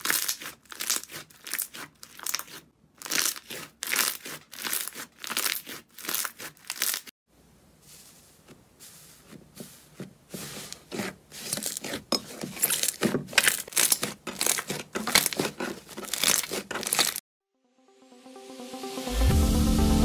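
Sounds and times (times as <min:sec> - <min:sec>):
slime crackling: 0:00.0 - 0:07.1, 0:09.2 - 0:17.2.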